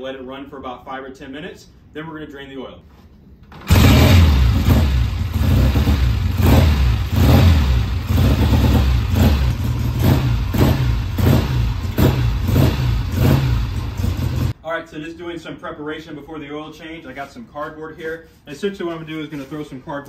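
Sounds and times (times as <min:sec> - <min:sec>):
motorcycle engine running: 0:03.7 - 0:14.5.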